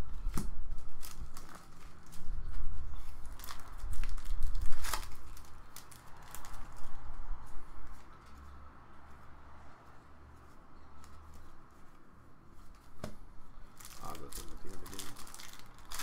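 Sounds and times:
foil wrapper crinkling and tearing: 0:00.7 - 0:07.0, 0:13.8 - 0:16.0.

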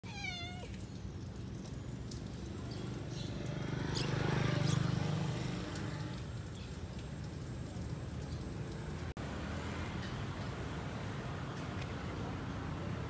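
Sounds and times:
vehicle driving past: 0:02.9 - 0:06.4.

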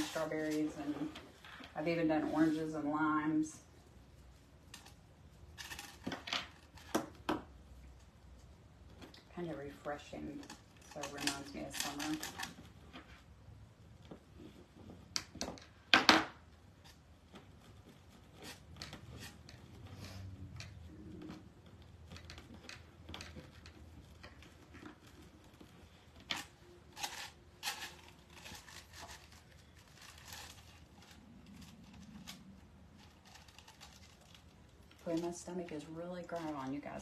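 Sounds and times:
plastic mesh crinkling: 0:20.8 - 0:37.0.

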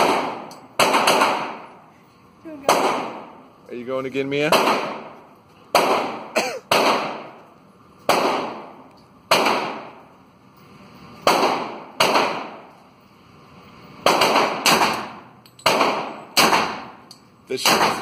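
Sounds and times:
submachine gun single shots: 0:00.0 - 0:01.7, 0:04.5 - 0:07.4, 0:08.1 - 0:10.0, 0:11.2 - 0:12.7, 0:14.0 - 0:17.0, 0:17.6 - 0:18.0.

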